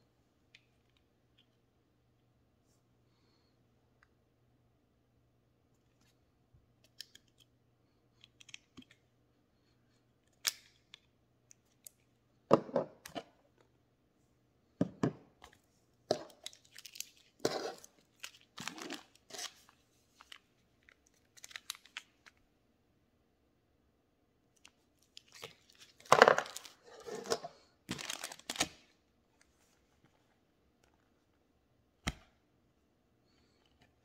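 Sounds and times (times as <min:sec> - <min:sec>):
packets rustling: 0:16.1 - 0:22.4, 0:25.2 - 0:28.8.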